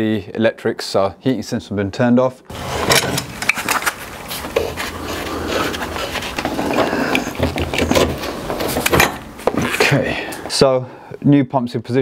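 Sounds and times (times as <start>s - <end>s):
metal parts clicking and rattling: 2.6s - 4.1s, 6.2s - 9.3s.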